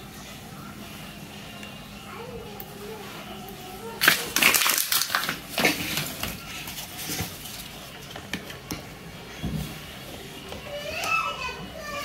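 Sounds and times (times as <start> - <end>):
wrapper crinkling: 4.0 - 7.8.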